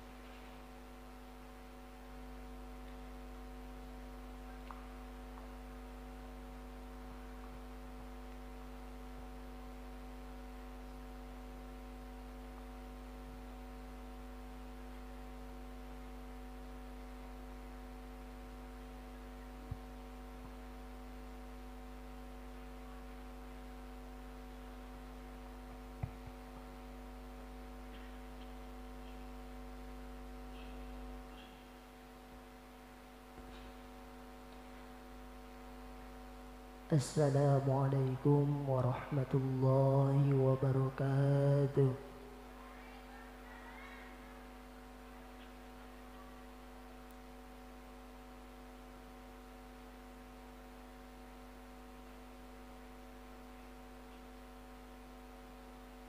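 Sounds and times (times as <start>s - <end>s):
electrical mains hum: 0.0s - 56.0s.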